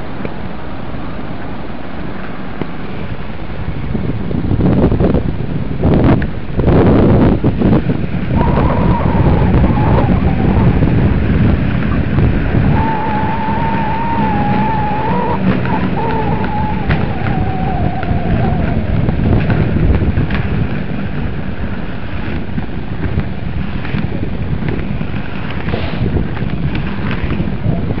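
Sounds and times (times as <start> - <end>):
wind buffeting microphone: 2.7 - 28.0
thin wavering whine: 8.3 - 20.7.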